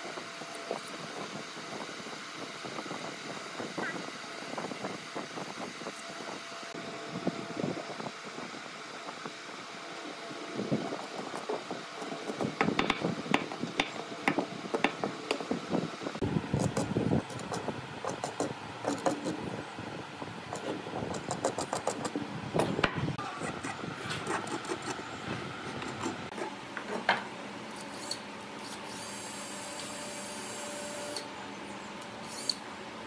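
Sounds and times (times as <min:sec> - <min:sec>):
sharp clicks and knocks: 0:11.0 - 0:15.6, 0:16.6 - 0:19.4, 0:20.5 - 0:23.0
pencil scratching on wood: 0:23.4 - 0:25.0.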